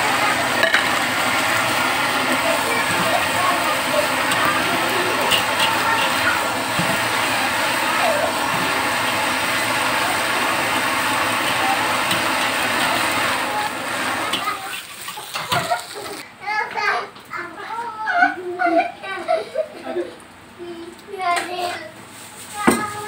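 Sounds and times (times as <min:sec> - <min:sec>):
food sizzling in a wok: 0:00.0 - 0:16.2
metal spatula scraping wok: 0:00.5 - 0:13.6.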